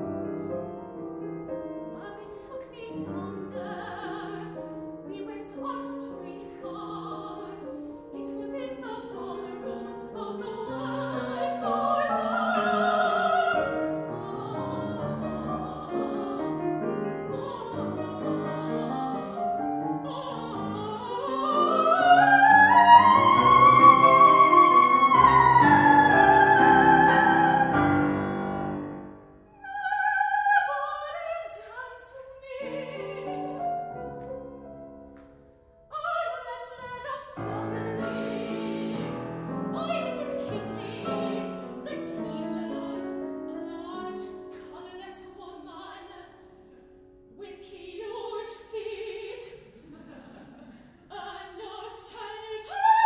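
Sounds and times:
grand piano accompaniment: 0.0s - 29.8s, 32.4s - 47.4s
woman singing classical song: 0.0s - 34.6s, 35.8s - 53.0s.

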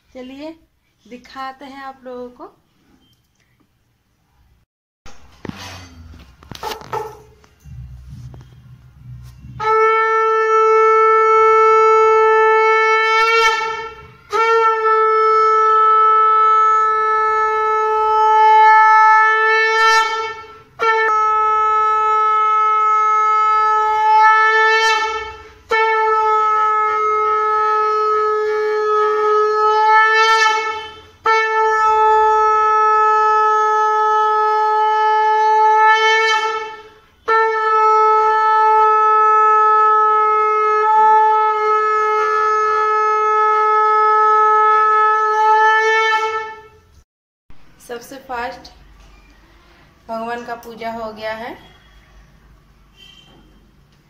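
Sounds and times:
conch shell blasts: 5.1s - 46.9s
breaths: 49.4s - 50.0s.

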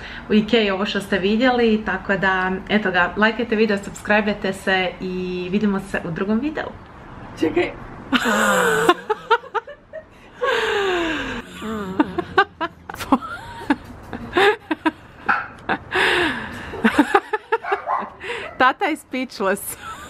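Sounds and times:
woman speaking: 0.3s - 6.8s, 18.5s - 20.0s
woman laughing: 8.1s - 18.7s, 19.6s - 20.0s.

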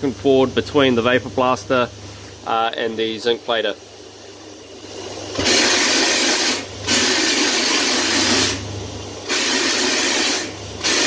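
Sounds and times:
steady low hum: 0.0s - 11.0s
abrasive slurry jet hissing: 5.3s - 11.0s.

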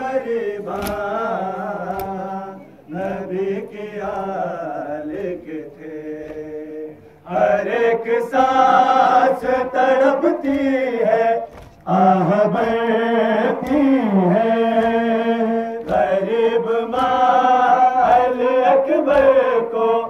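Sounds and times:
men chanting a lament in unison: 0.0s - 20.0s.

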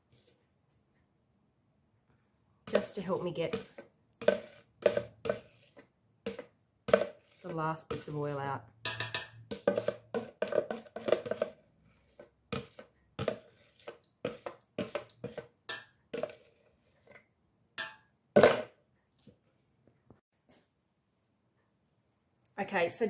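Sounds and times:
metal spoon knocking in plastic bucket: 2.7s - 5.6s, 6.2s - 11.6s, 12.2s - 16.4s.

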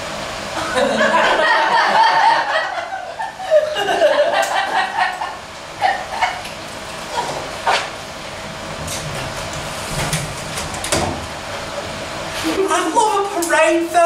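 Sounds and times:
audience laughing: 0.6s - 6.5s.

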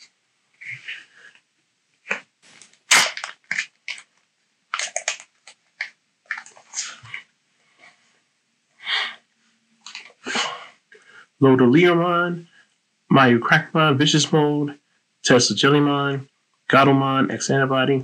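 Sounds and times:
cards rustling: 2.0s - 7.2s
foil pack tearing and crinkling: 2.1s - 6.5s.

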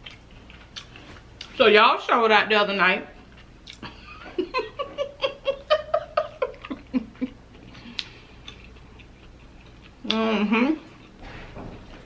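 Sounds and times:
woman giggling: 3.8s - 7.4s.

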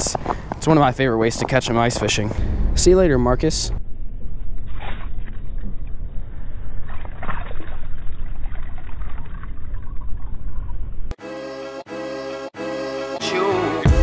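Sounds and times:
low rumble: 1.6s - 7.2s
water splashing and trickling: 5.0s - 10.9s
music: 11.2s - 14.0s.

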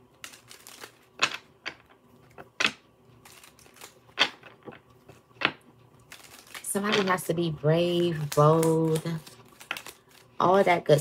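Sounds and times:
cards riffling: 0.2s - 1.4s, 2.6s - 4.8s, 5.4s - 7.2s, 8.0s - 10.4s
cards slapping and clicking: 0.2s - 4.8s, 8.0s - 10.3s.

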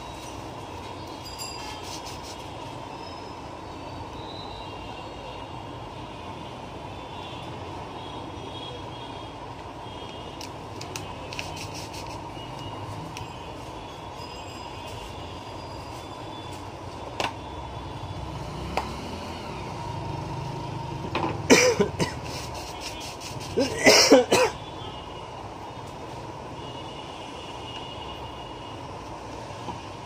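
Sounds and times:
person coughing: 21.5s - 22.3s, 23.5s - 24.6s.

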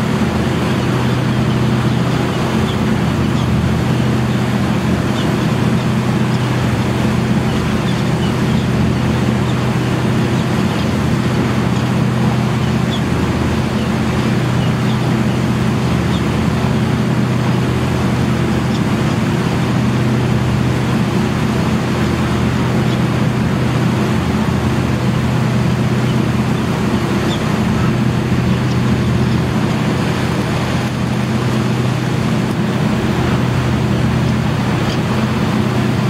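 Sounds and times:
ferry engines humming: 0.0s - 36.0s
rush of stern wake: 0.0s - 36.0s
wind: 0.0s - 36.0s.

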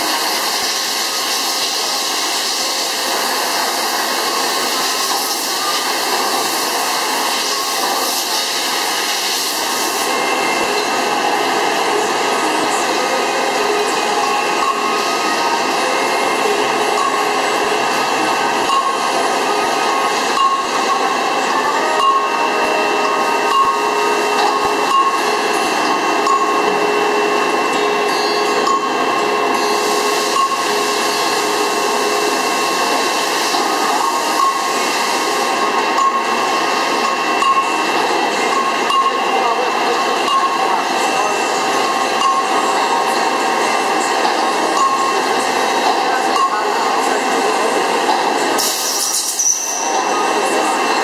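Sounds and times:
drilling machine spindle whine: 0.0s - 51.0s
drill bit hissing through steel: 48.6s - 50.1s.

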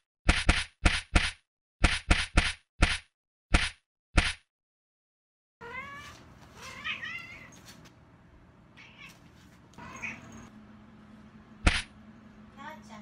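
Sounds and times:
cat meowing: 5.6s - 7.6s, 8.8s - 10.5s.

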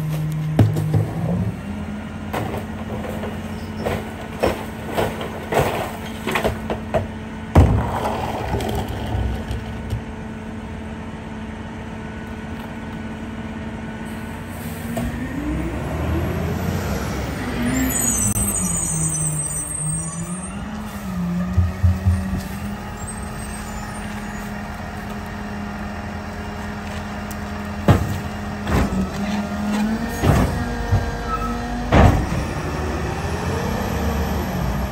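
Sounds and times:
diesel truck engine: 0.0s - 34.9s
heavy thump: 21.6s - 22.7s.

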